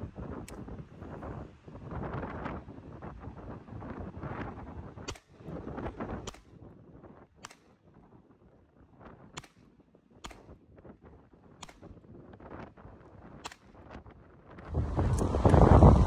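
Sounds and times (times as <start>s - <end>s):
pistol shots: 5.0s - 5.5s, 6.2s - 6.7s, 7.4s - 8.0s, 9.3s - 10.6s, 11.6s - 12.1s, 13.4s - 13.9s.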